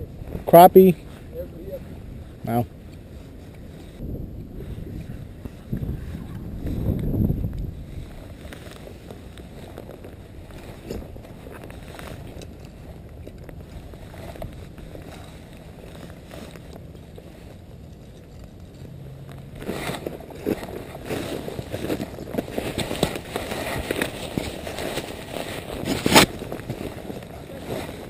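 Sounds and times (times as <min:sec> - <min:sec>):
wind rumbling on microphone: 0:00.0 - 0:28.0
faint rustling: 0:00.2 - 0:28.0
footsteps crunching dry leaves: 0:18.9 - 0:28.0.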